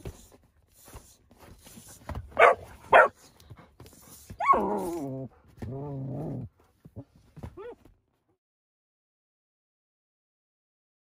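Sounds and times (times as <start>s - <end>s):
puppy yipping: 2.3s - 3.4s, 4.3s - 5.1s
puppy whining: 2.3s - 8.0s.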